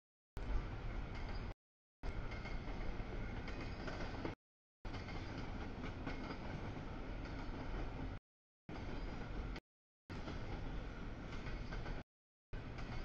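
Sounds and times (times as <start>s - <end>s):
train wheel noise on rails: 0.4s - 13.0s
freight train rumbling past: 2.1s - 12.0s, 12.6s - 13.0s.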